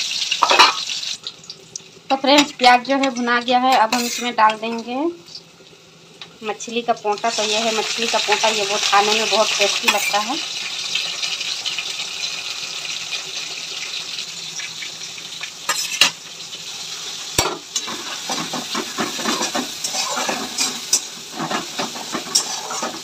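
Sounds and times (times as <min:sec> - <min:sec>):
frying sizzle in oil: 0:00.0 - 0:23.0
metal spatula scraping a wok: 0:03.0 - 0:05.4, 0:09.2 - 0:10.4, 0:15.7 - 0:16.2, 0:17.8 - 0:23.0.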